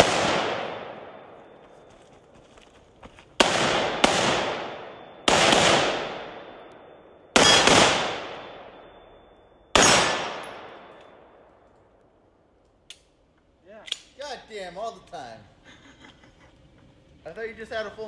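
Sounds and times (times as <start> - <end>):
pistol shots echoing: 0.0 - 1.4, 3.4 - 11.3.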